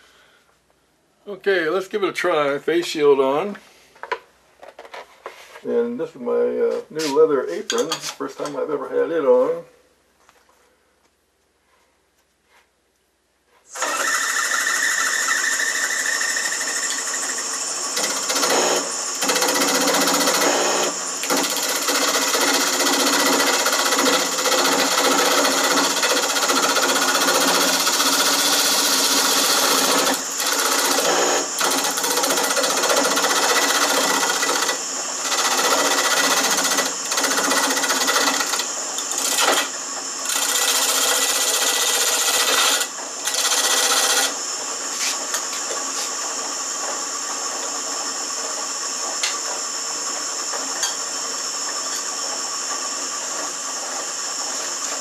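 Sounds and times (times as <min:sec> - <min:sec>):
turning tool scraping wood: 0:13.6 - 0:45.3
lathe running hum: 0:13.8 - 0:55.0.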